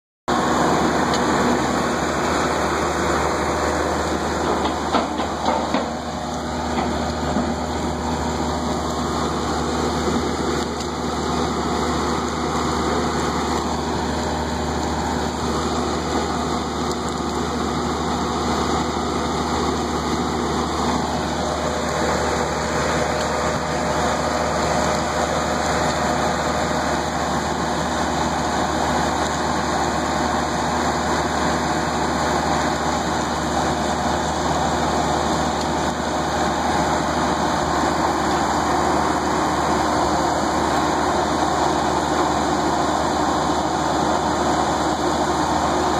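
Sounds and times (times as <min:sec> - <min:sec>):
machinery humming: 0:00.3 - 0:45.9
sharp knocks: 0:04.5 - 0:06.0.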